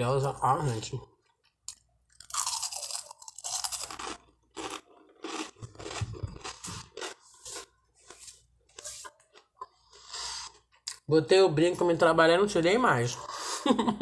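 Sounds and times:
toast crunching: 1.2s - 11.1s.

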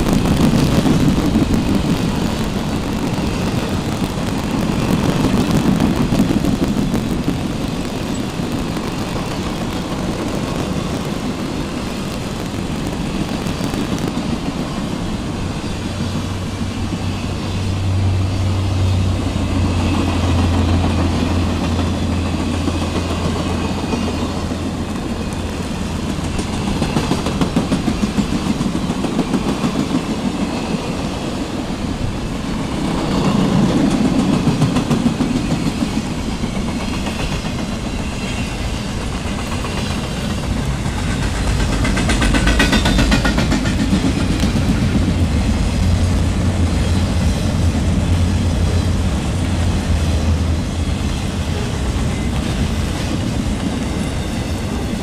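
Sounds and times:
train rolling noise: 0.0s - 55.0s
wheels clicking over track: 18.9s - 31.1s, 32.8s - 54.9s.

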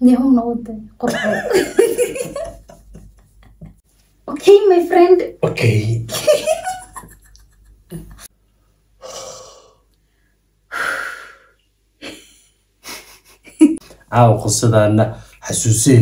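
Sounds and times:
soft breathy laughter: 12.0s - 13.8s.

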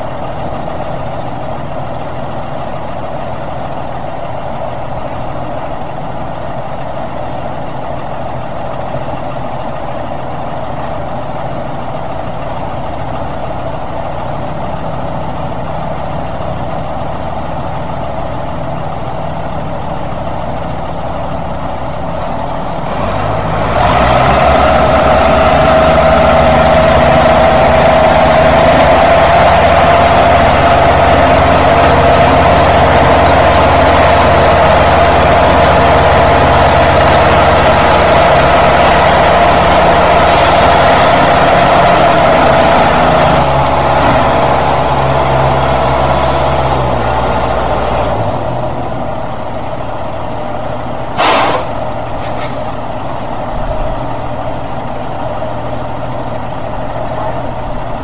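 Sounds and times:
truck engine running under load: 0.0s - 58.0s
hiss of air: 51.2s - 52.5s.

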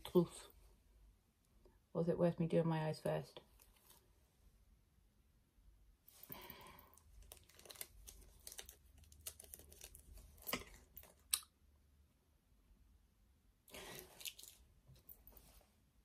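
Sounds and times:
faint crinkling and rustling: 3.4s - 4.4s, 6.1s - 11.3s, 13.7s - 15.8s.

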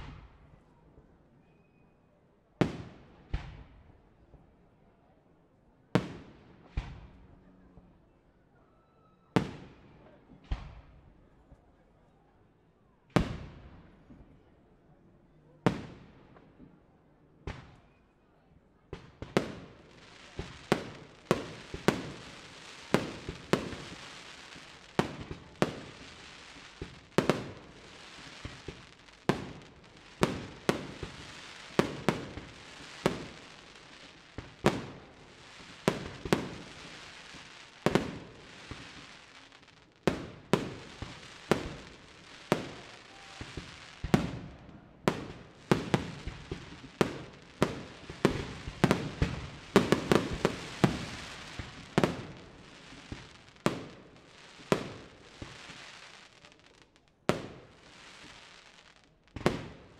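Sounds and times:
firework bangs with echo: 2.6s - 3.8s, 19.0s - 54.0s.

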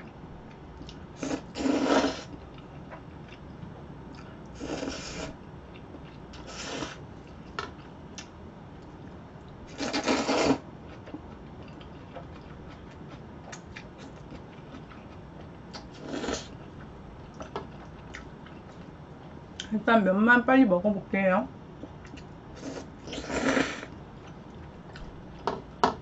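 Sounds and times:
person slurping noodles: 1.2s - 2.3s, 4.6s - 5.4s, 6.4s - 7.0s, 9.7s - 10.6s, 16.0s - 16.5s, 22.6s - 23.9s
chewing: 10.9s - 18.9s.

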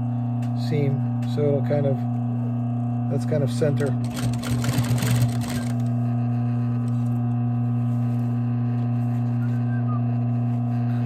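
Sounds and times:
motor humming: 0.0s - 11.0s
sewing machine stitching leather: 3.8s - 6.0s.

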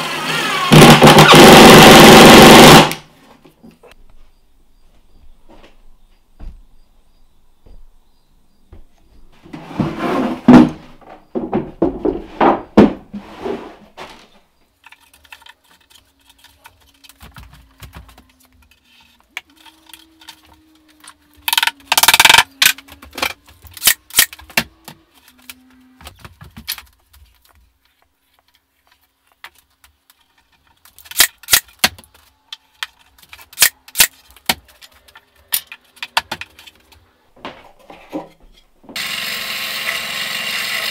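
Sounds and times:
boards scraping and sliding: 9.4s - 17.1s, 34.1s - 38.7s
boards knocking and tapping: 9.5s - 14.3s, 16.7s - 18.7s, 26.0s - 27.6s.

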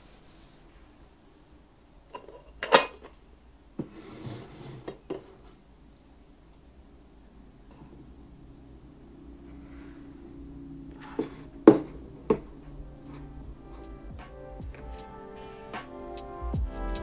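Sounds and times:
rubbing sound: 0.0s - 1.0s.

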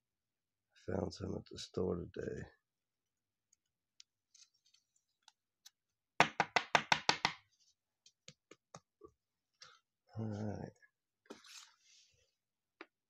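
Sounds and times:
plastic card case tapping: 6.2s - 7.4s.

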